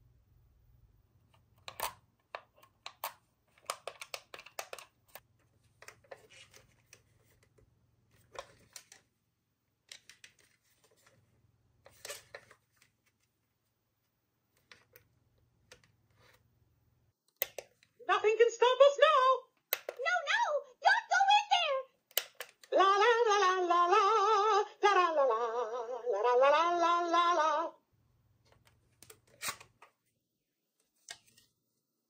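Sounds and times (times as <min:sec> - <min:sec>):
plastic toys clicking and rattling: 0:01.6 - 0:05.2.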